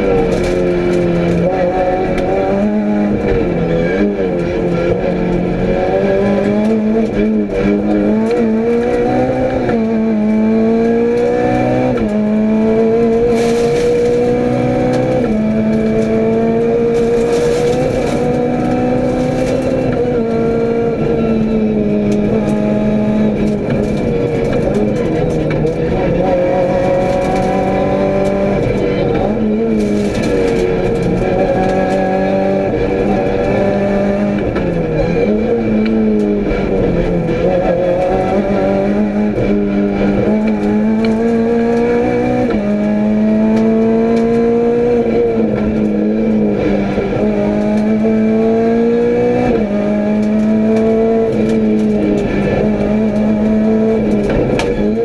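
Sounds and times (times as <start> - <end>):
rally car engine at full throttle: 0.0 - 55.0.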